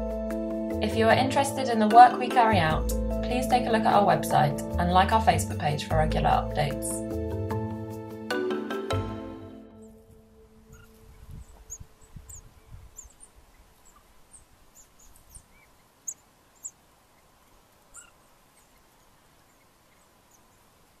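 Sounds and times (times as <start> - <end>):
background music: 0.0 - 12.0
rustling in dry leaves: 10.0 - 21.0.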